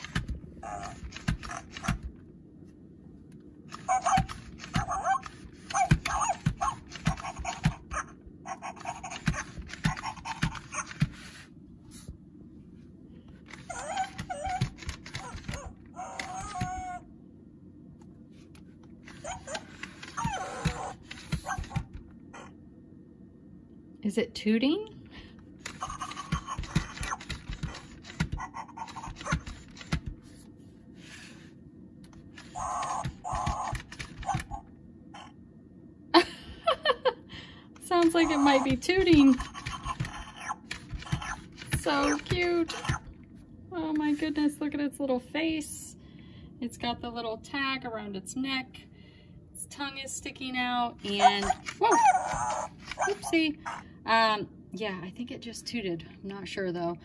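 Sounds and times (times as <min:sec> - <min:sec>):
toy motor: 0:00.0 - 0:02.1, 0:03.7 - 0:11.4, 0:13.5 - 0:17.0, 0:19.0 - 0:22.5, 0:25.6 - 0:30.1, 0:32.3 - 0:35.3, 0:37.8 - 0:43.2, 0:51.0 - 0:53.8
toy puppy sounds from speaker: 0:00.0 - 0:02.1, 0:03.7 - 0:11.2, 0:13.5 - 0:17.0, 0:19.1 - 0:22.5, 0:25.6 - 0:30.0, 0:32.4 - 0:35.3, 0:37.9 - 0:43.1.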